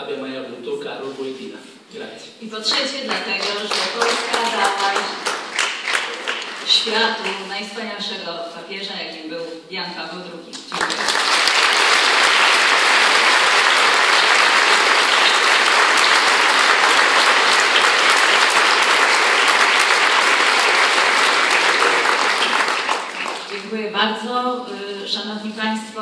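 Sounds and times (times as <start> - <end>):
audience applauding: 2.7 - 7.5, 10.7 - 23.6.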